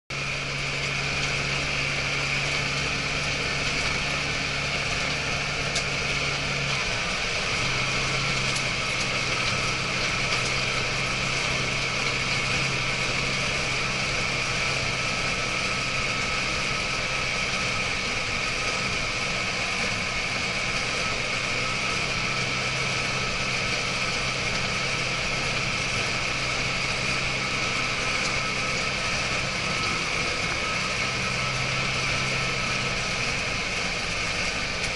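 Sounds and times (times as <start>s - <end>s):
high whine of crawler tracks: 0.1s - 34.9s
tractor diesel engine droning: 0.1s - 34.9s.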